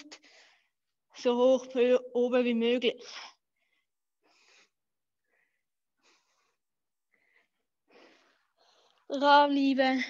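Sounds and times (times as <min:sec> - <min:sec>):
faint breathing puffs: 0:00.0 - 0:01.0, 0:03.0 - 0:09.1.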